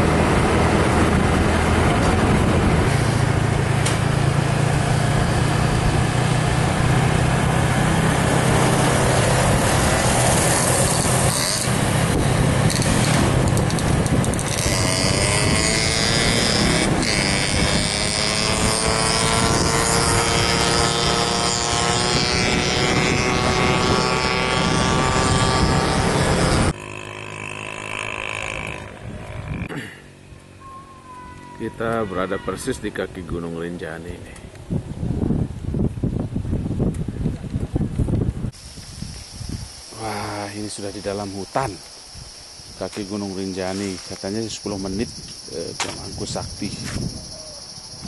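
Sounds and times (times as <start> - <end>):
motorcycle engine running: 0.0 - 30.5.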